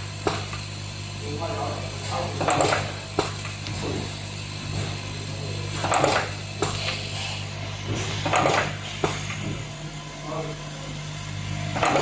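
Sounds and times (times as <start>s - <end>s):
machine low hum: 0.0s - 12.0s.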